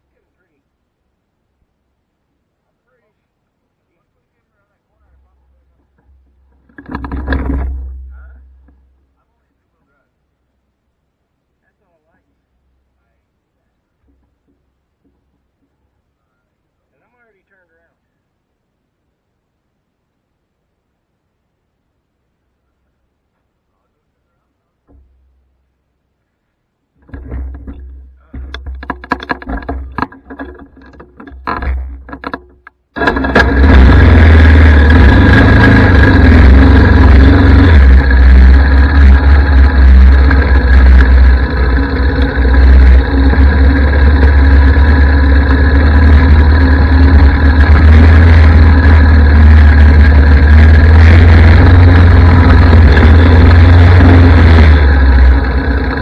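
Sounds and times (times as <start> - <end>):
quad engine running: 4.6 - 10.0, 27.0 - 56.0.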